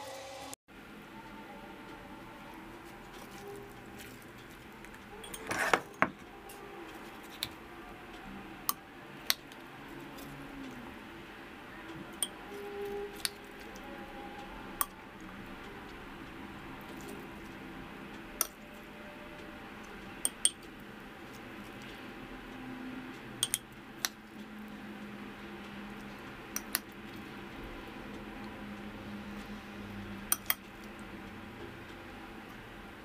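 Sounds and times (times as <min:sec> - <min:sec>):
low steady background noise: 0:00.7 - 0:33.0
metal spoon clinking on glass jar: 0:05.2 - 0:06.1, 0:23.4 - 0:23.6.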